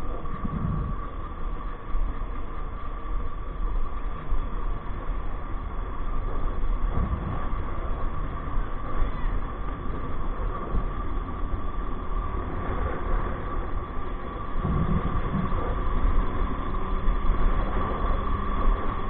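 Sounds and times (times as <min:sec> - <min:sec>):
motorcycle engine drone: 0:00.0 - 0:19.0
wind rumbling on microphone: 0:00.0 - 0:19.0
low bumps: 0:06.2 - 0:09.0, 0:09.6 - 0:19.0.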